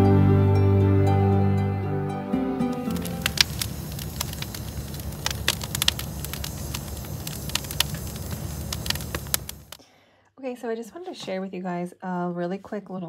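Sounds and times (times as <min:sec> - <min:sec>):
wood campfire crackling: 0:02.5 - 0:09.8
sharp pops of fire: 0:02.7 - 0:09.8.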